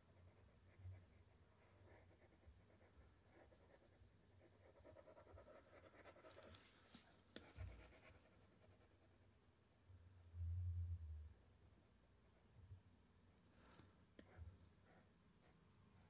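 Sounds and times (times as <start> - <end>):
faint scratching on input device: 0.0 - 9.2.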